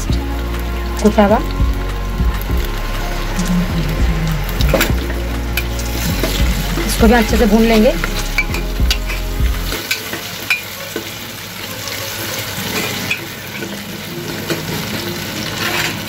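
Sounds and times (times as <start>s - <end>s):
low hum: 0.0s - 9.8s
food sizzling in oil: 0.2s - 16.0s.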